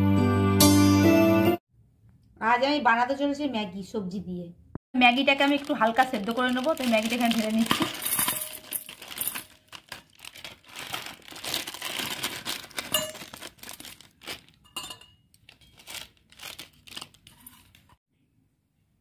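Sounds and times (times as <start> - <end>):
plastic wrapper crinkling: 5.0 - 18.0.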